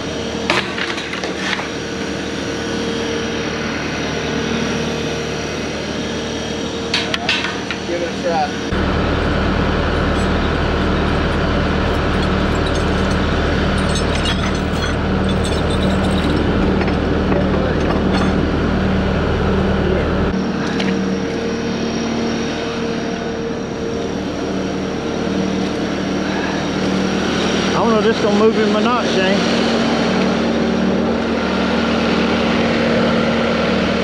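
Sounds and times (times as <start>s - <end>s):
diesel engine idling: 7.9s - 34.0s.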